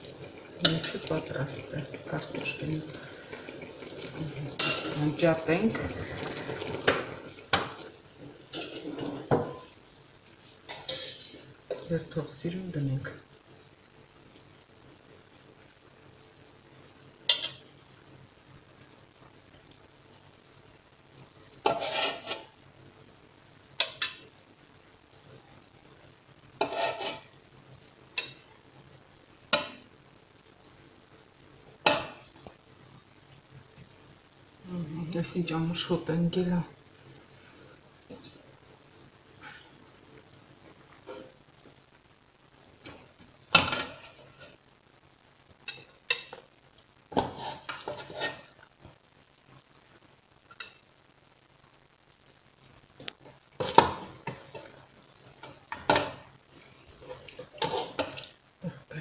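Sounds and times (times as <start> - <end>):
metal spoon clanking on pot: 4.6 - 5.0, 17.3 - 17.6, 23.8 - 24.2
metal spoon scraping a pot: 8.6 - 9.3, 10.7 - 11.4, 21.6 - 22.4, 26.6 - 27.3, 47.2 - 48.5.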